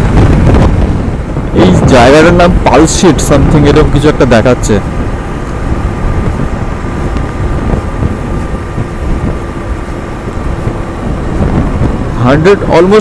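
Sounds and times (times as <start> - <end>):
motorcycle engine hum: 0.0 - 13.0
wind buffeting microphone: 0.0 - 13.0.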